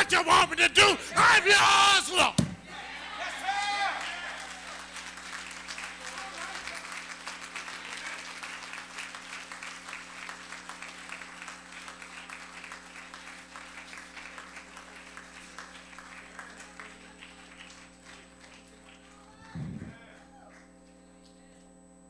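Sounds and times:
congregation applauding: 0.0s - 2.3s, 3.2s - 20.7s.

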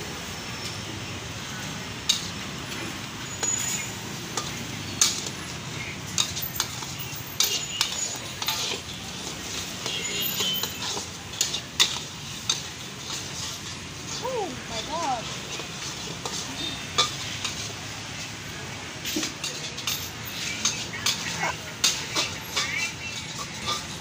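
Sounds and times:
low background rush: 0.0s - 24.0s
metal spatula scraping a wok: 3.2s - 14.2s, 15.2s - 18.3s, 19.0s - 24.0s.

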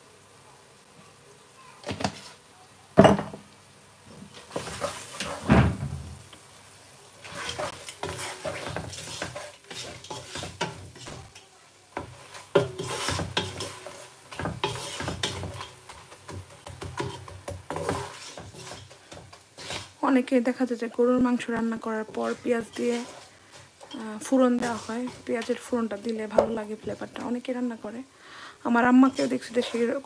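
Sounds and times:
oil sizzling: 0.0s - 30.0s
knocks against a pot: 3.0s - 3.4s
spatula scraping a pot: 4.3s - 5.4s, 7.2s - 11.4s, 12.0s - 20.0s, 21.3s - 27.3s, 28.9s - 30.0s.

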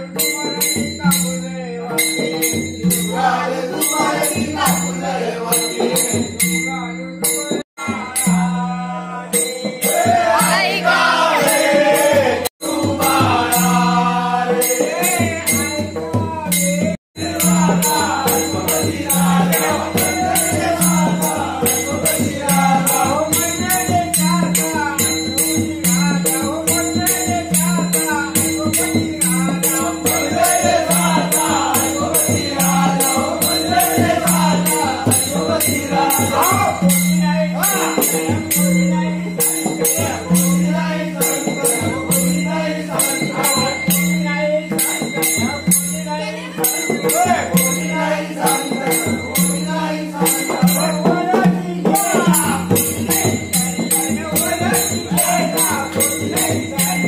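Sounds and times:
drum steady beat: 0.0s - 57.0s
hand cymbals jingling: 0.0s - 57.0s
men singing folk song: 2.9s - 6.3s, 7.8s - 57.0s.

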